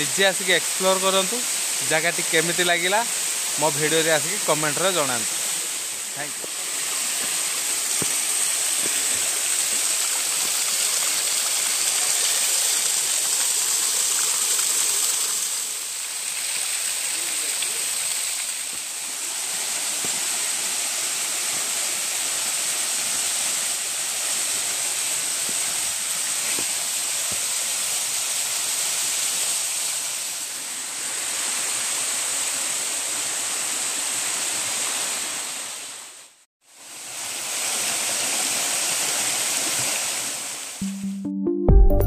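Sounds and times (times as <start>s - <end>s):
waterfall rushing over rocks: 0.0s - 36.0s.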